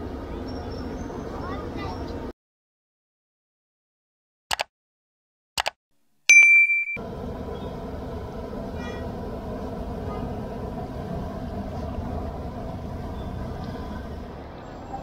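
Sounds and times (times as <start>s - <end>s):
street noise rumble: 0.0s - 2.3s, 7.0s - 15.0s.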